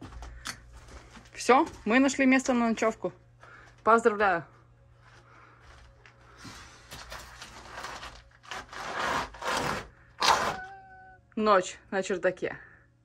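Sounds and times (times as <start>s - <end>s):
rustling and scraping: 5.2s - 10.6s.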